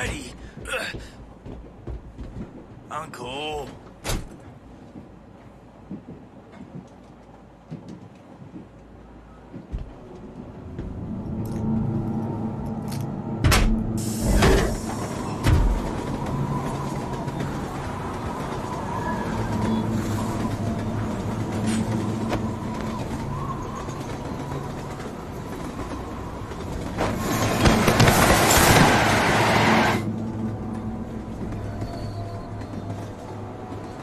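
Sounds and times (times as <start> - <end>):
train rumble and wind rush: 0.0 - 34.0
train rushing past: 10.0 - 34.0.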